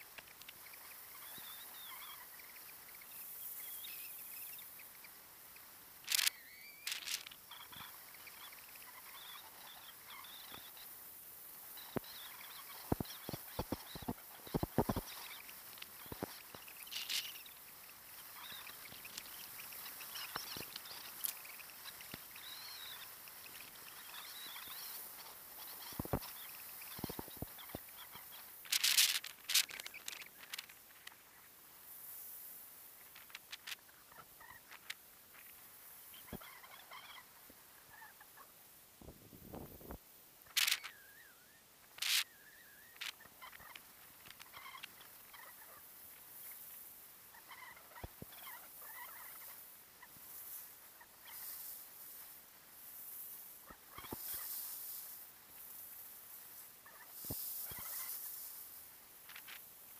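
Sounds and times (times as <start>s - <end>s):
high wavering squeaks: 6.1s - 10.8s, 40.5s - 45.6s
skis sliding over snow: 9.9s - 34.8s.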